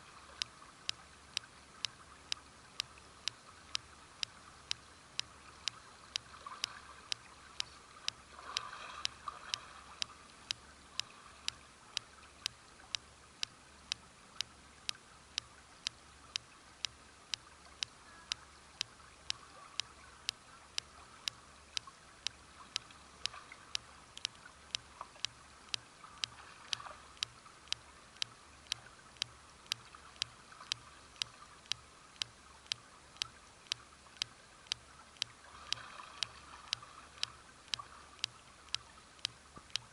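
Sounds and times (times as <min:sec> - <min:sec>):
creek water running: 0:00.0 - 0:39.9
sharp regular clicking: 0:00.0 - 0:39.9.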